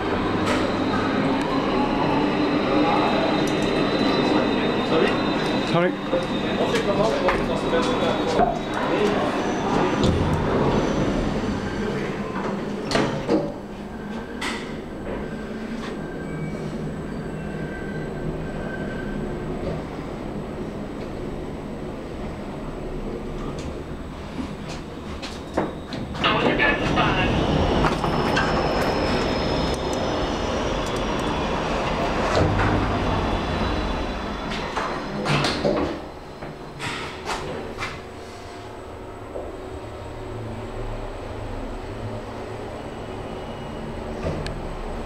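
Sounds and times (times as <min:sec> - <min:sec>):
steady station rumble: 0:19.2 - 0:45.0.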